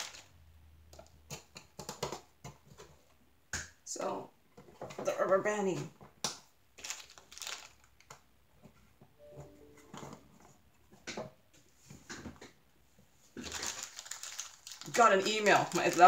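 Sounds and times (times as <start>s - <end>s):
rubber bands clicking and rustling: 0.0s - 0.3s, 6.2s - 8.3s, 13.4s - 16.0s
phone notification chime: 9.2s - 10.2s.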